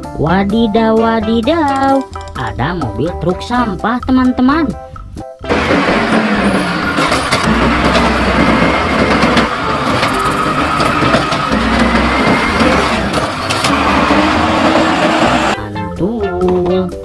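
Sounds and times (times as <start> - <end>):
garbage truck engine running: 5.4 - 15.6.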